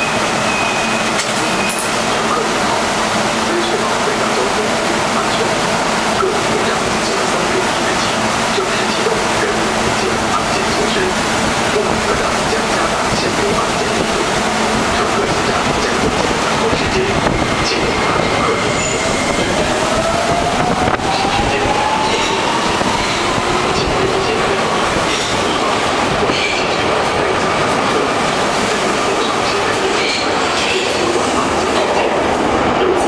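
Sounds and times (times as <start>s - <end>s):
train wheels rumbling on rail: 0.0s - 33.0s.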